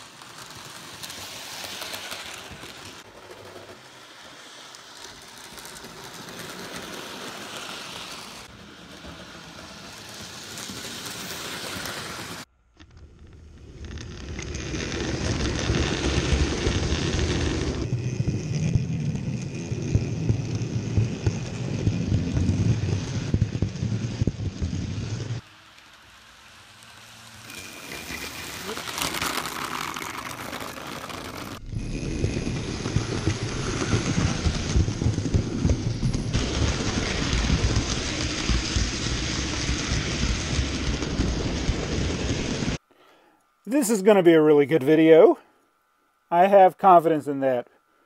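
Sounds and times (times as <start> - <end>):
model trains rattling: 0.0 - 12.5, 25.6 - 31.7
deep rumble: 13.0 - 25.4, 30.7 - 42.8.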